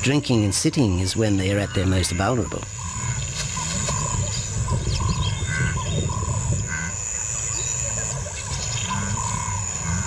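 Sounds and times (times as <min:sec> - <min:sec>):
bird calls: 0:01.2 - 0:10.0.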